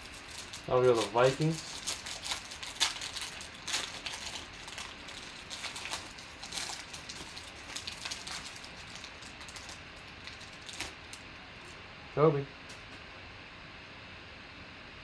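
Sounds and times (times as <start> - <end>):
foil wrapper crinkling and tearing: 0.0 - 11.8.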